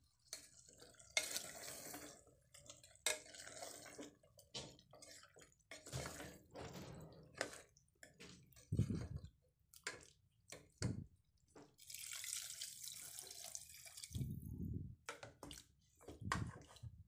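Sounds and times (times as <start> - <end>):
water pouring into pot: 0.3 - 4.5, 11.8 - 14.5.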